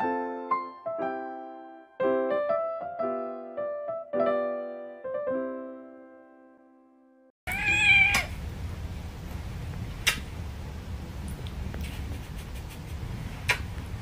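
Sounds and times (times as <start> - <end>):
kitten meowing: 7.5 - 8.4
sharp clicks: 10.0 - 10.3.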